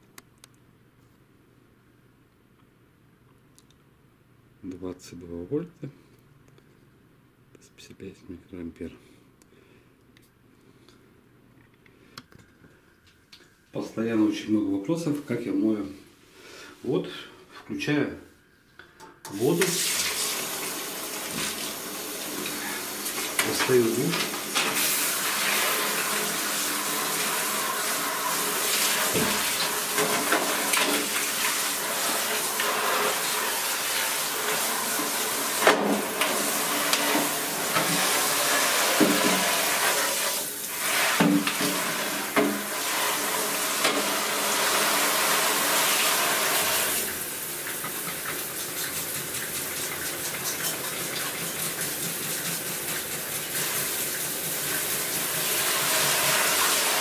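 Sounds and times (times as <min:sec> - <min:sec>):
shower water spraying on plastic: 0:19.4 - 0:57.0.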